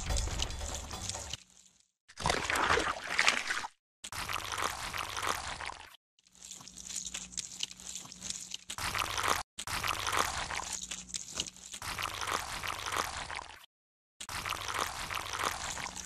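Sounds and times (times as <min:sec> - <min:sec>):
muddy water sloshing and trickling: 0:00.0 - 0:13.6, 0:14.2 - 0:16.0
small wet splashes: 0:02.1 - 0:05.9.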